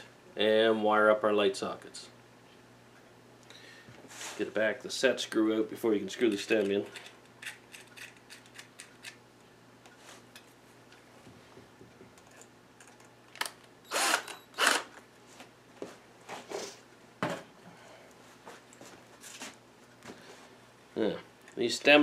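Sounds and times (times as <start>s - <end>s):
cordless drill bursts: 13.9s - 14.9s.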